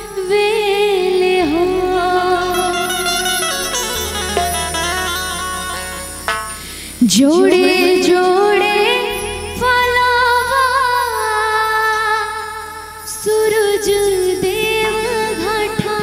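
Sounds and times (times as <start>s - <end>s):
woman singing through speakers: 0.0s - 3.5s, 7.0s - 16.0s
steady low tone: 0.0s - 16.0s.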